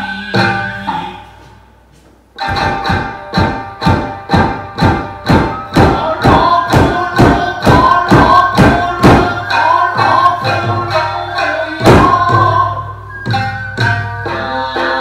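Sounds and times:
person singing: 0:00.0 - 0:01.5, 0:05.7 - 0:13.0, 0:14.2 - 0:15.0
shamisen playing: 0:02.4 - 0:15.0
sharp percussive strikes: 0:02.4 - 0:15.0.

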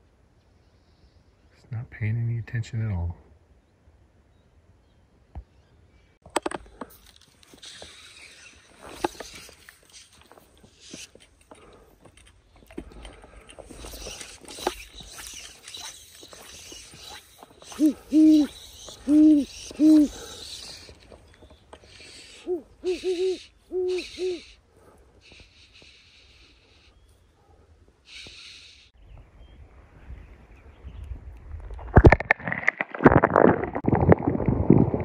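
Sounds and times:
owl hooting: 0:16.4 - 0:21.0, 0:21.8 - 0:24.6.

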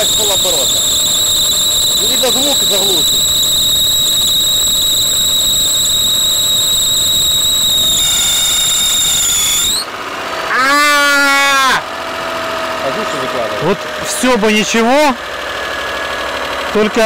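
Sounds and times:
car engine running: 0:00.0 - 0:08.7, 0:09.3 - 0:17.0
alternator belt squealing: 0:00.0 - 0:12.0.

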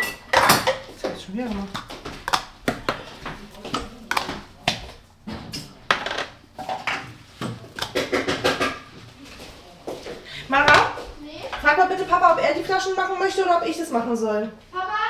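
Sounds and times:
dishes and utensils clinking: 0:00.0 - 0:04.5.

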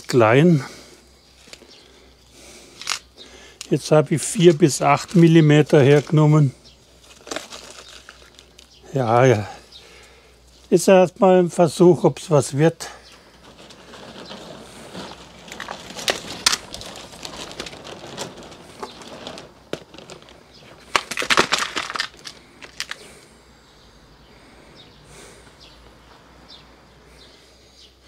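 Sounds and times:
plastic plant pots clattering: 0:00.0 - 0:11.0, 0:11.9 - 0:23.3.

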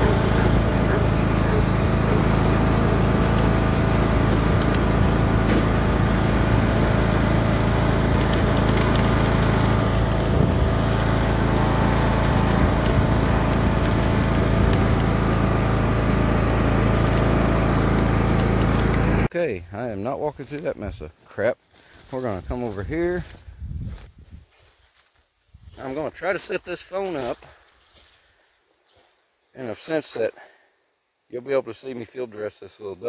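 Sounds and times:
lawn mower engine humming: 0:00.0 - 0:19.3.

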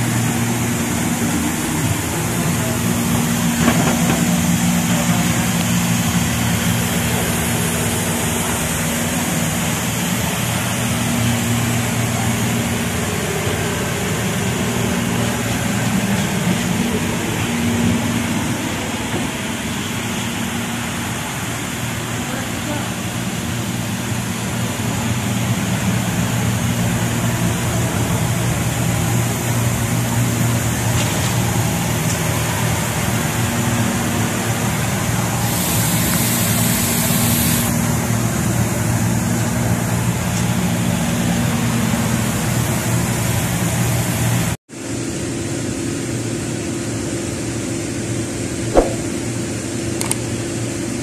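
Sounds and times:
ventilation fans rushing: 0:00.0 - 0:51.0
compressed air hiss: 0:35.4 - 0:37.8.

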